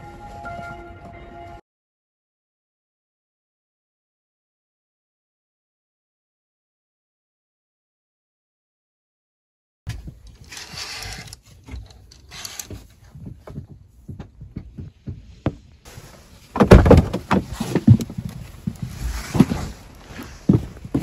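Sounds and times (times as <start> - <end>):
door thumps and bangs: 16.6 - 18.0.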